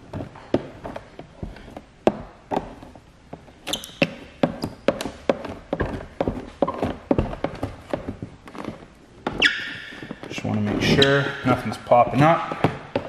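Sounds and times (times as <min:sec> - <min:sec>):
squeegee squeaks: 0:03.6 - 0:04.9, 0:09.3 - 0:11.7.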